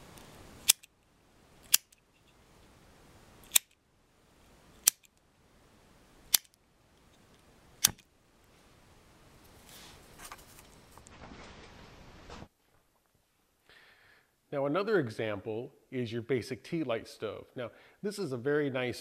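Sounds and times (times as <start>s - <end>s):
lighter clicking: 3.5s - 3.8s.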